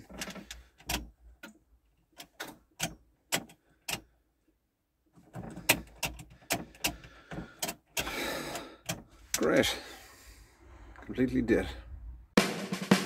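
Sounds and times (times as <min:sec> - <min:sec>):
ignition key clicks: 0:00.2 - 0:04.1, 0:05.4 - 0:09.0.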